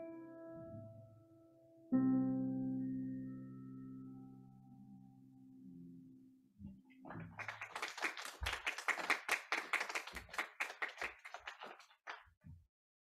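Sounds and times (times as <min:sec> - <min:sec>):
piano chord: 0:00.0 - 0:06.4
audience clapping: 0:07.1 - 0:12.3.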